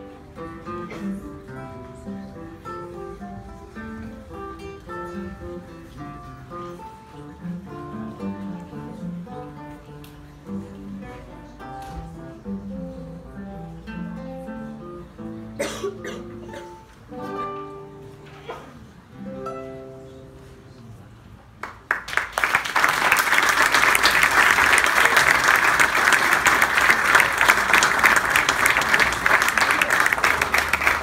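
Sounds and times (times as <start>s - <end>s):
classical guitar duet: 0.0s - 21.7s
audience applauding: 21.6s - 31.0s.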